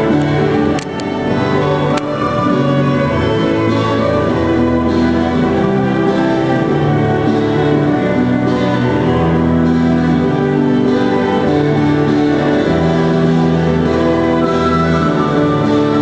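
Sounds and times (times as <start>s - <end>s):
folk ensemble with violin: 0.0s - 16.0s.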